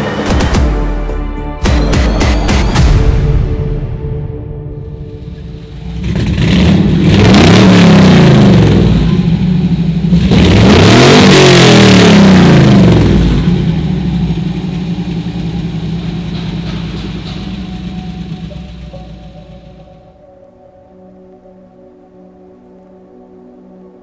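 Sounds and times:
car engine revving and idling: 4.8s - 20.2s.

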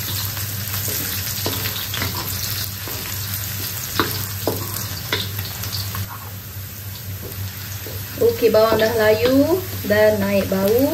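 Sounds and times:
aromatics sizzling in hot oil: 0.0s - 10.9s
taps and scrapes against wok: 3.9s - 5.3s.

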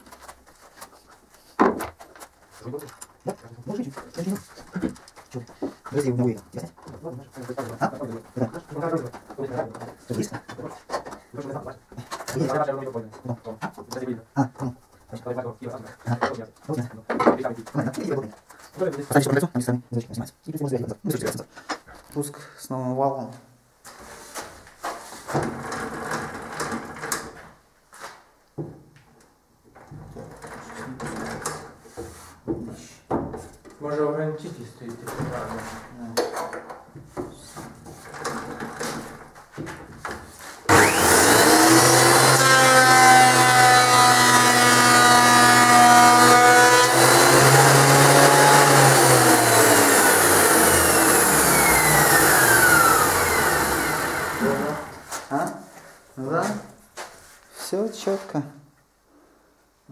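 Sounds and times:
thickness planer motor running: 40.7s - 55.1s.

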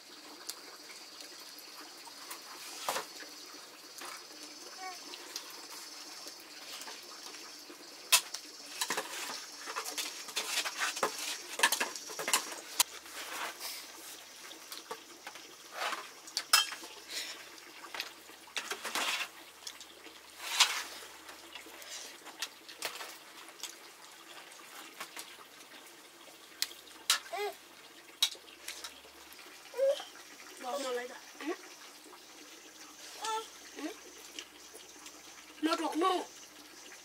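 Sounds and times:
metal pots and plates clinking: 8.1s - 12.6s, 15.8s - 16.9s.

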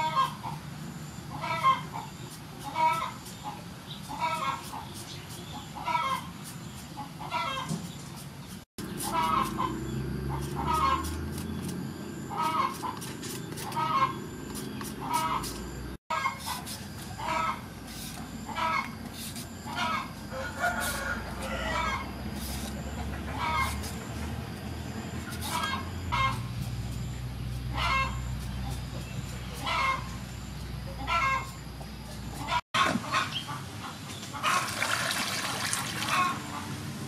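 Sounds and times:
chickens clucking: 1.3s - 6.3s, 7.0s - 7.9s, 8.8s - 11.4s, 12.2s - 19.0s, 19.6s - 24.1s, 25.2s - 26.5s, 27.7s - 30.2s, 30.8s - 34.7s, 36.0s - 36.7s.

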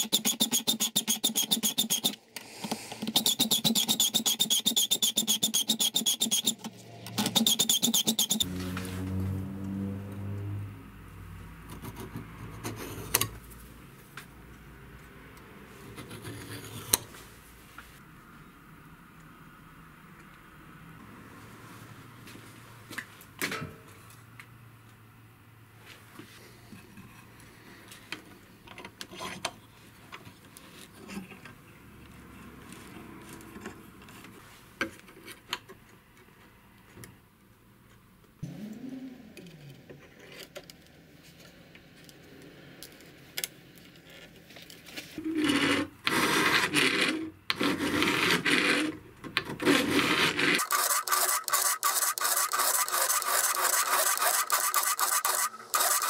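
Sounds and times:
file rasping on steel blade: 0.0s - 2.2s, 3.0s - 8.5s, 45.2s - 49.0s, 49.6s - 56.0s.

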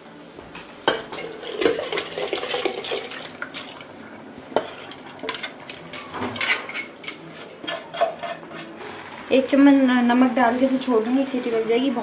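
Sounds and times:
metal spoon scraping a metal pot: 6.4s - 8.8s.

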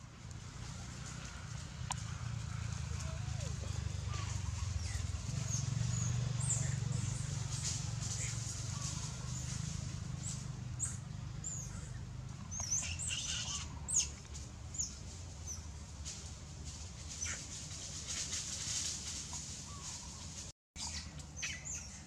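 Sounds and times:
steady low hum: 0.0s - 22.0s
high chirps and squeaks: 12.5s - 14.2s.

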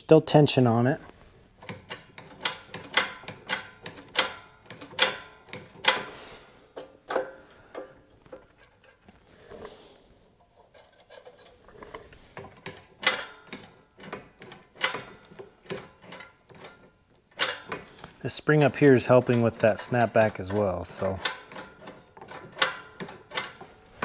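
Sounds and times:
metallic clicks and rattles: 1.6s - 6.1s, 10.4s - 24.0s.

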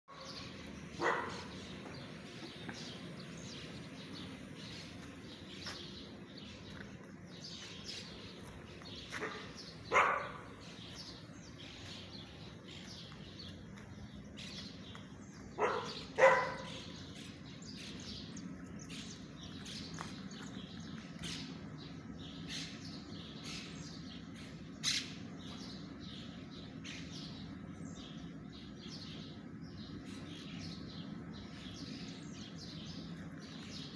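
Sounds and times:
small birds chirping: 0.1s - 33.9s
dog barking: 1.0s - 1.6s, 9.1s - 10.6s, 15.6s - 16.9s.

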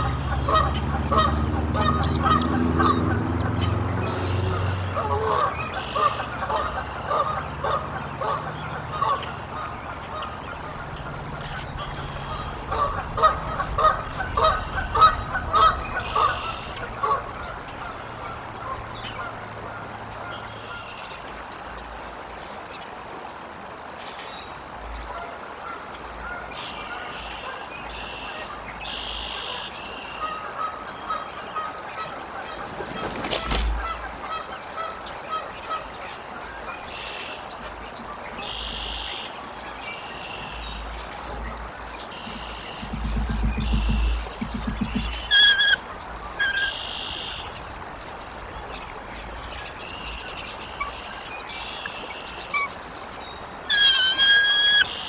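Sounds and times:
geese honking: 0.0s - 21.3s, 25.0s - 55.0s
small birds chirping: 34.6s - 55.0s
low rumble: 40.5s - 45.3s.

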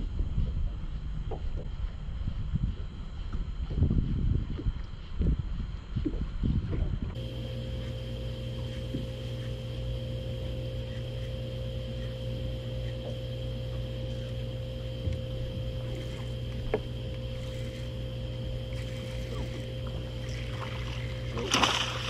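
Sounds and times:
electric trolling motor humming: 6.4s - 22.0s.

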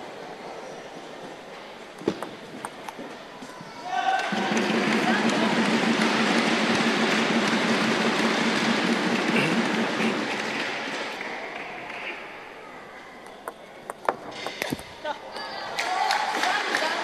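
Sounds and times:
arena crowd noise: 0.0s - 17.0s
table tennis ball clicks: 13.3s - 14.8s.

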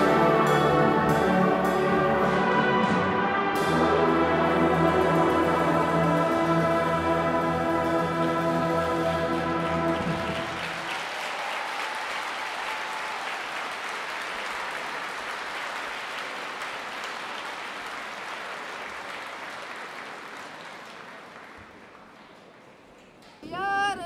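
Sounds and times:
brass band chord: 0.0s - 10.8s
audience applause: 7.8s - 22.8s.

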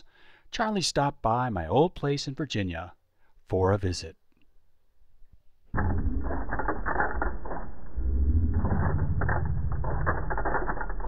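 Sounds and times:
low rumble: 5.7s - 11.0s
mechanical rattling and clattering: 5.8s - 11.0s.

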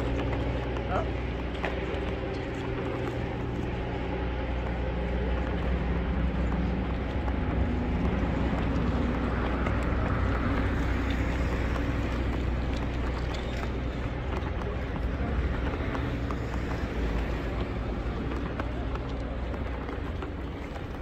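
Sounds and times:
low rumble of traffic: 0.0s - 21.0s.

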